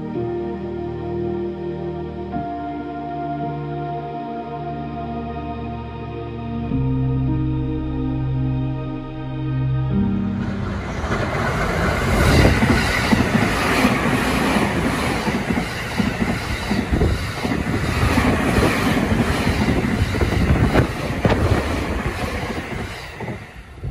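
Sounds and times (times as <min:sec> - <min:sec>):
train running past: 0:09.6 - 0:23.9
wheels clattering over rail joints: 0:10.8 - 0:23.9.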